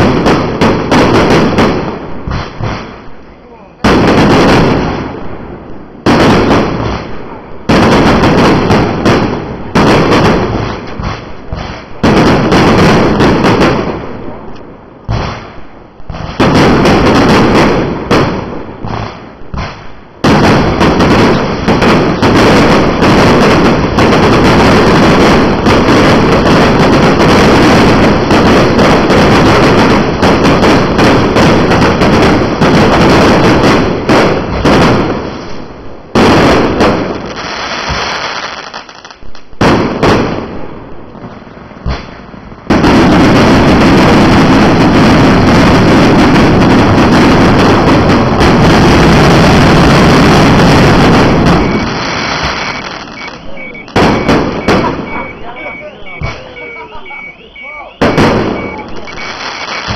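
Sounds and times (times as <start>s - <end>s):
fireworks bangs and crackles: 0.0s - 59.9s.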